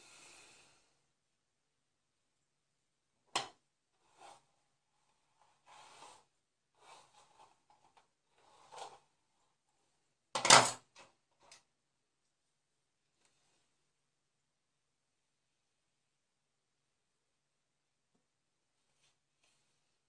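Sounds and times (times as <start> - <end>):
rubbing noises: 4.0 - 9.5.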